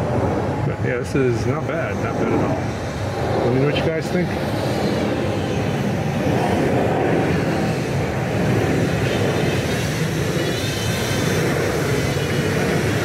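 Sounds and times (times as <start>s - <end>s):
high wavering whine: 0.0s - 13.0s
drone motors buzzing: 1.5s - 13.0s.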